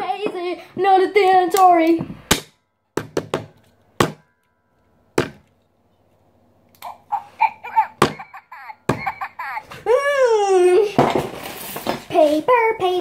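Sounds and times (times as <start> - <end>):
child vocal sounds: 7.7 - 11.0
taps on plastic toy: 8.0 - 8.3, 8.9 - 9.2.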